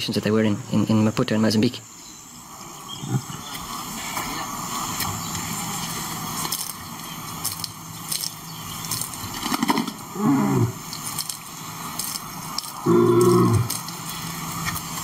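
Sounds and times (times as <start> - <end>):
lion grunt: 2.9 - 3.5, 10.1 - 10.9, 12.8 - 13.8
lion calling: 2.9 - 4.6, 9.5 - 11.1, 12.8 - 14.0.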